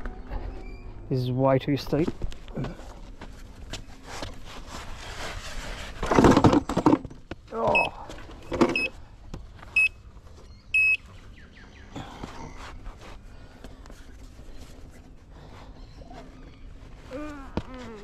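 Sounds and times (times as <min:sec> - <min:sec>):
short electronic beeps: 0:10.8 - 0:11.0.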